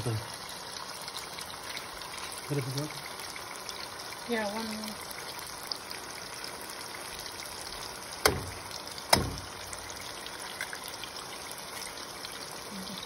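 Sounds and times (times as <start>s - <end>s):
eggs sizzling in a pan: 0.0s - 13.0s
sharp knocks against pan: 8.2s - 9.7s.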